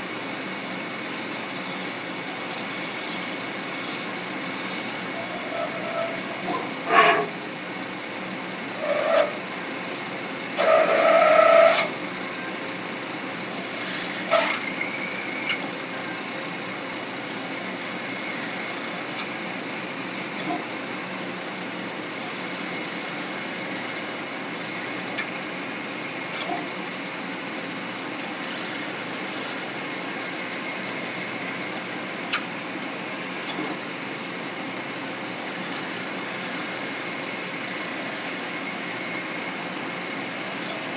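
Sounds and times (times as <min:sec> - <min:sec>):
milling machine cutting metal: 0:01.7 - 0:07.7, 0:10.5 - 0:12.1, 0:13.6 - 0:16.0
short whining bursts: 0:02.6 - 0:07.6, 0:08.6 - 0:09.5, 0:10.5 - 0:12.1, 0:13.6 - 0:15.7.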